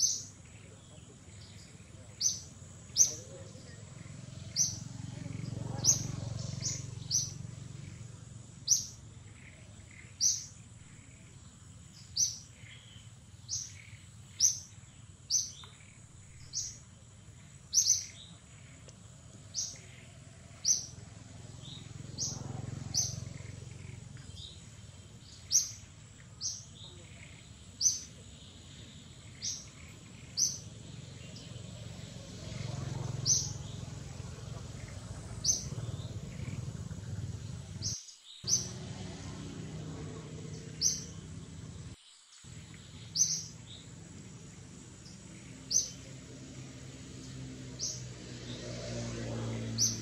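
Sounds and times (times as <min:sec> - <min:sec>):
bird chirping: 0:00.0 - 0:50.0
low background rumble: 0:00.5 - 0:47.0.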